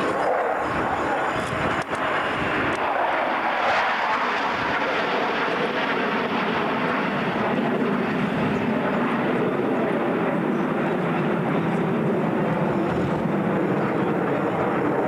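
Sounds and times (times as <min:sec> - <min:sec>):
jet fighters flying over: 0:00.0 - 0:15.0.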